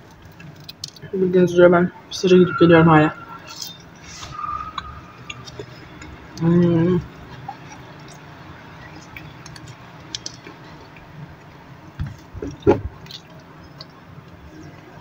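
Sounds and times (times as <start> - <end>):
wet chewing sounds: 0.0 - 1.1, 3.4 - 15.0.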